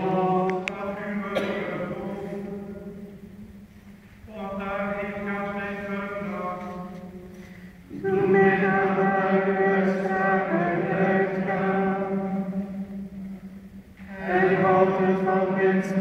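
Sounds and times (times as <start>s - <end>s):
monks chanting in unison: 0.0s - 3.1s, 7.9s - 12.8s, 14.0s - 16.0s.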